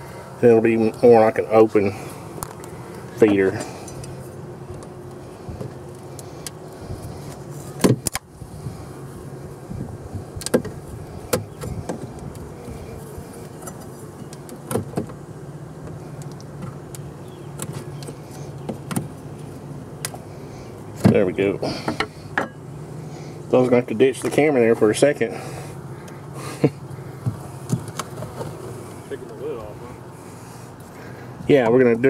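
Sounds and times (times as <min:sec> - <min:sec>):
bees humming: 0:00.0 - 0:32.0
hive tool knocking and clicking: 0:10.4 - 0:12.5.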